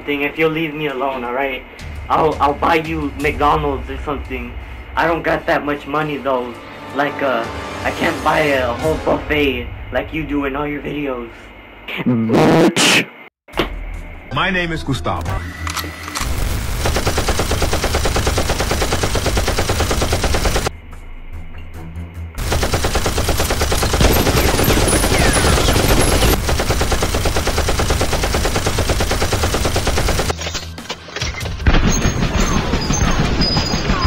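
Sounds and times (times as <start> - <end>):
machine-gun fire: 16.2 - 20.7, 22.4 - 30.3.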